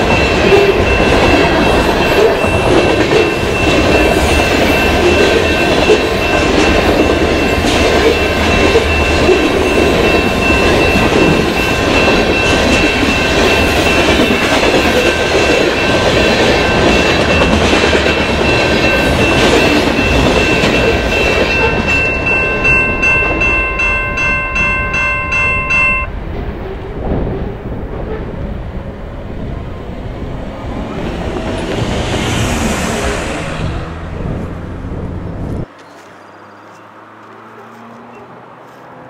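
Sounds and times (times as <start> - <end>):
crossing signal bell ringing: 0.0 - 26.2
steel train wheels rumbling on rails: 0.0 - 35.7.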